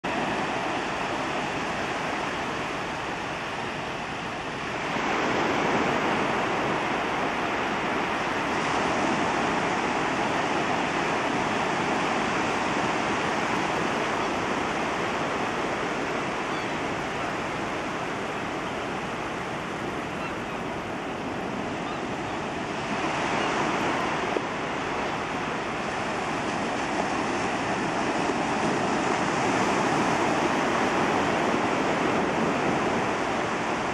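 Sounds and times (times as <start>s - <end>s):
waves breaking on beach: 0.0s - 33.9s.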